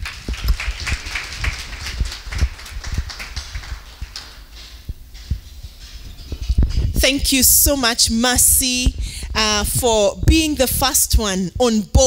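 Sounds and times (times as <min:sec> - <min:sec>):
audience applauding: 0:00.0 - 0:04.8
low thumps: 0:00.0 - 0:11.7.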